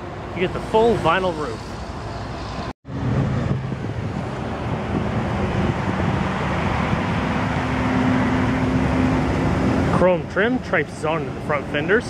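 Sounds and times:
road traffic: 0:00.0 - 0:12.0
wind on microphone: 0:02.5 - 0:09.9.

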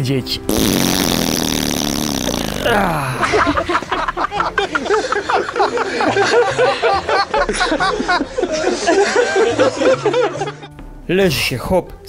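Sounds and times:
canned laughter: 0:03.0 - 0:10.7.

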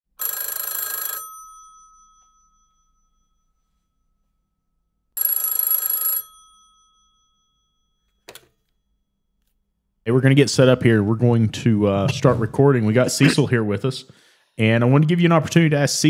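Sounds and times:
telephone bell ringing: 0:00.2 - 0:04.0, 0:05.2 - 0:09.0.

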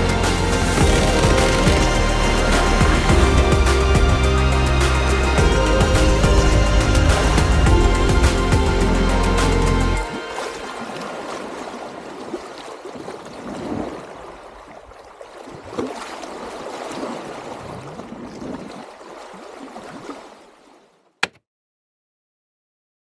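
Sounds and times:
water rushing and sloshing: 0:00.0 - 0:21.2
sharp click: 0:21.2 - 0:21.4.

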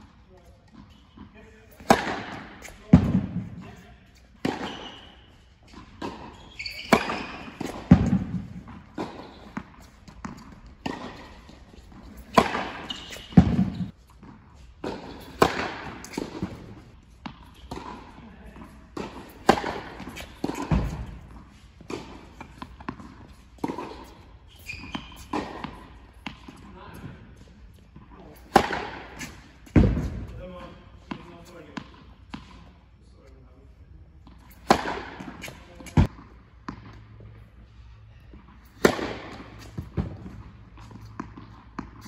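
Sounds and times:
racket striking tennis ball: 0:00.7 - 0:26.7, 0:28.2 - 0:30.3, 0:34.3 - 0:37.0, 0:38.5 - 0:42.0
ball bouncing on hard court: 0:00.8 - 0:03.8, 0:04.4 - 0:26.6, 0:28.2 - 0:30.4, 0:38.7 - 0:42.0.

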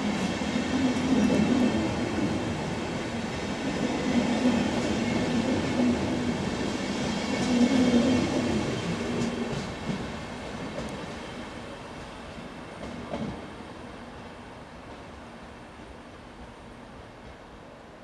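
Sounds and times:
train wheels rumbling on rails: 0:00.0 - 0:13.8.

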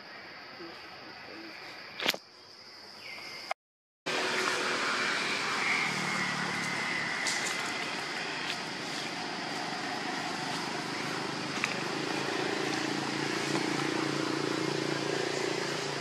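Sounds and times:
road traffic rushing: 0:04.1 - 0:16.0.

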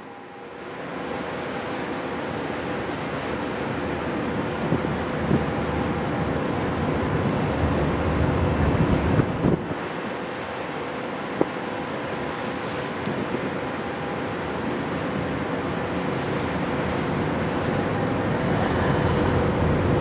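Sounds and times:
sea wash: 0:00.0 - 0:20.0
ship machinery hum: 0:00.0 - 0:20.0
wind buffeting microphone: 0:07.0 - 0:10.0, 0:16.9 - 0:20.0.

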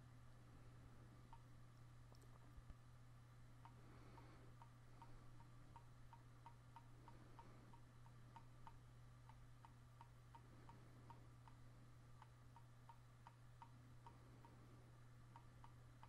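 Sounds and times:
low steady hum: 0:00.0 - 0:16.0
mouse scroll wheel ticking: 0:04.6 - 0:11.6, 0:12.2 - 0:14.6, 0:15.3 - 0:16.0.

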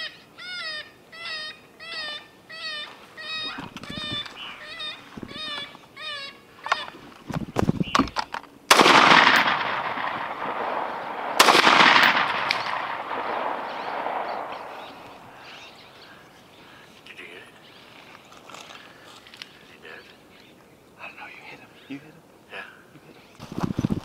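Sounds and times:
rifle shots echoing: 0:07.9 - 0:16.3.

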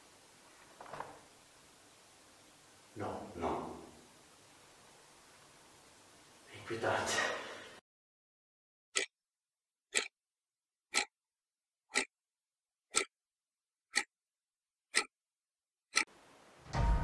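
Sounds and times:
clock ticking: 0:09.9 - 0:10.2, 0:10.9 - 0:11.1, 0:11.9 - 0:12.1, 0:12.9 - 0:13.1, 0:13.9 - 0:14.1, 0:14.9 - 0:15.1, 0:15.9 - 0:16.1.

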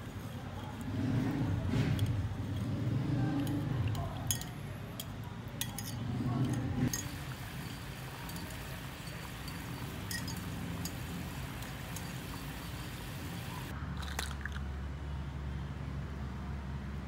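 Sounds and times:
wire whisk stirring in bowl: 0:00.0 - 0:13.6
whisk clinking against bowl: 0:03.4 - 0:04.6, 0:05.6 - 0:12.9.

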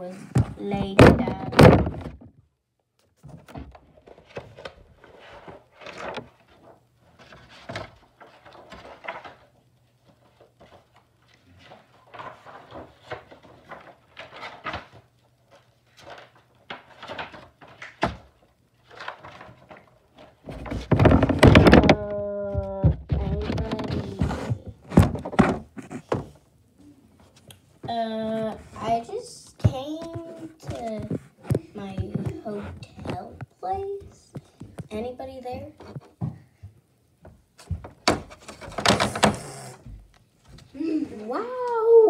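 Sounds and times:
light knocks taps and rustles: 0:29.6 - 0:39.3.

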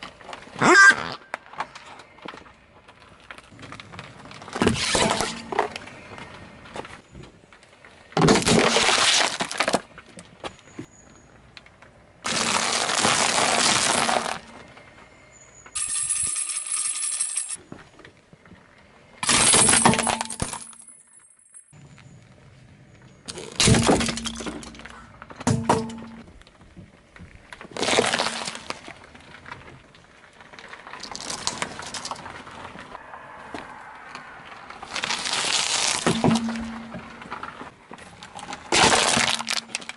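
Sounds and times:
car tyre crushing objects: 0:01.2 - 0:11.0, 0:11.7 - 0:15.7, 0:23.3 - 0:39.9
ice-cream cones breaking: 0:08.2 - 0:09.9, 0:12.2 - 0:14.5, 0:27.6 - 0:29.0, 0:34.8 - 0:36.9, 0:38.5 - 0:39.9.

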